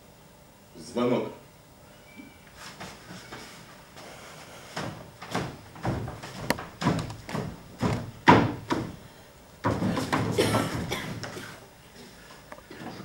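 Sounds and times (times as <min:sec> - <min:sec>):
footsteps on stage floor: 0:02.6 - 0:09.0.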